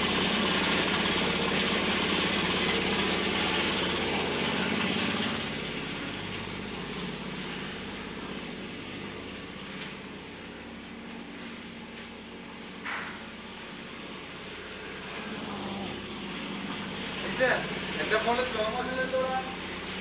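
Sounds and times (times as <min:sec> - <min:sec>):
spray gun hissing: 0:00.0 - 0:03.9, 0:06.6 - 0:11.5, 0:12.5 - 0:16.5
air compressor running: 0:00.0 - 0:20.0.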